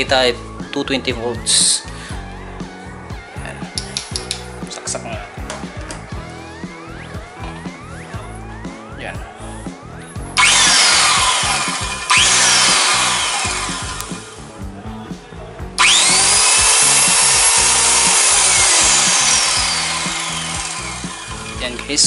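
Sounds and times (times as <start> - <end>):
circular saw motor whine: 10.3 - 14.4, 15.8 - 22.0.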